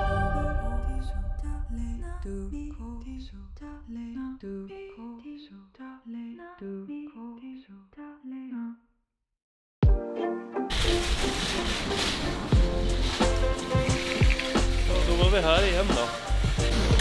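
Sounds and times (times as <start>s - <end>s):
simple melody background music: 0.0s - 1.8s, 9.8s - 17.0s.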